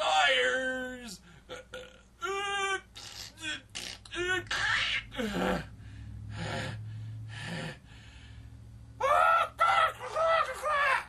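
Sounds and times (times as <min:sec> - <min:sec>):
man wailing cry: 0:02.2 - 0:02.9, 0:09.0 - 0:11.0
man grunting: 0:03.4 - 0:05.7.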